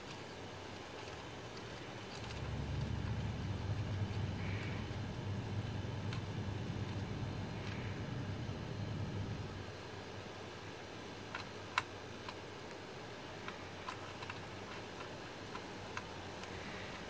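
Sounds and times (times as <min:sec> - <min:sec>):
small metal clicks and ticks: 0:00.0 - 0:04.8, 0:11.3 - 0:12.8, 0:13.4 - 0:17.0
low steady hiss: 0:00.0 - 0:17.0.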